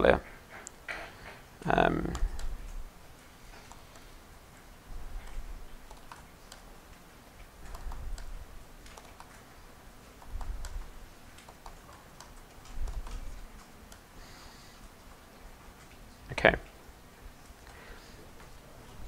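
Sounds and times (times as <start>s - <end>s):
keyboard key clicks: 7.7s - 9.4s, 10.2s - 14.0s.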